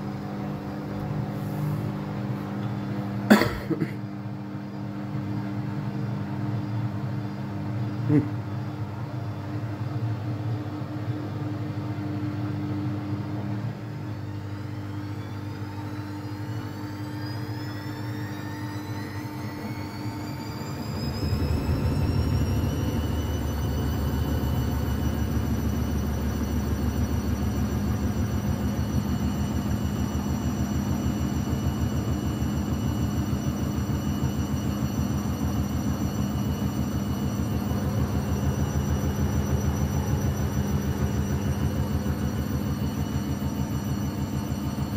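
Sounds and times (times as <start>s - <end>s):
washing machine motor whine: 0.0s - 44.9s
heavy low rumble of unbalanced load: 20.5s - 26.8s.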